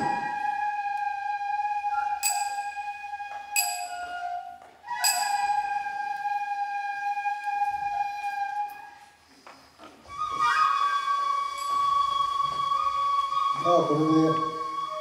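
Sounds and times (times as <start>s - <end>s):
bamboo flute playing long notes: 0.0s - 9.3s, 10.0s - 15.0s
sharp percussive strikes: 2.2s - 2.9s, 3.6s - 4.1s, 5.0s - 5.7s.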